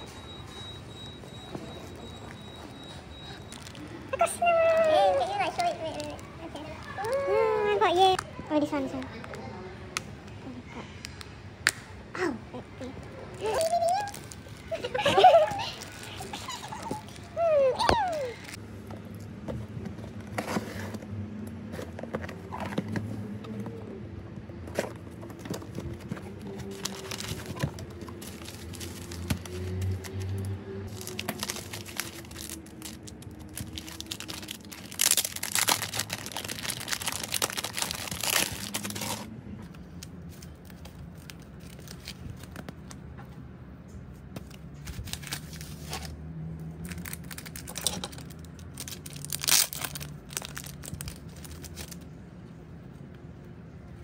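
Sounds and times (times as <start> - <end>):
plastic packaging crinkling: 26.0 - 39.3, 46.8 - 52.0.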